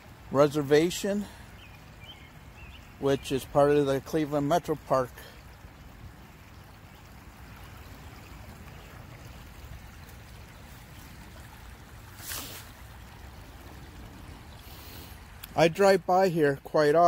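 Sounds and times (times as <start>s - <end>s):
creek water trickling over stones: 0.0s - 17.0s
brief rush of noise: 12.2s - 12.8s.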